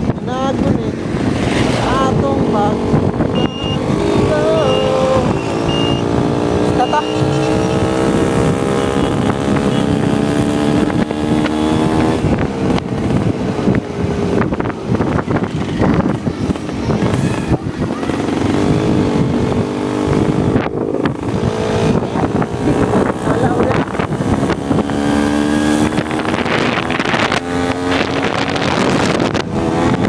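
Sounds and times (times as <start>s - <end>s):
motorcycle engine running: 0.0s - 30.0s
wind buffeting microphone: 0.0s - 30.0s.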